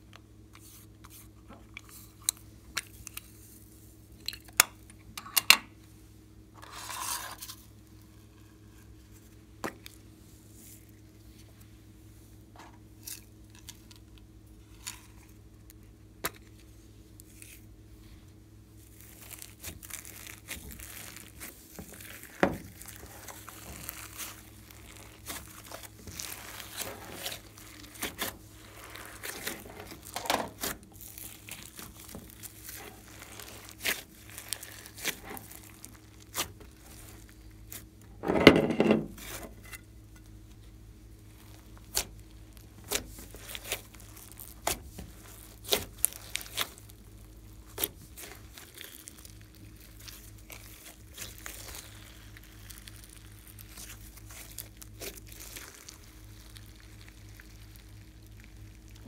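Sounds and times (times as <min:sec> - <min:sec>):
hands squishing slime: 0:18.8 - 0:38.0, 0:41.2 - 0:59.0.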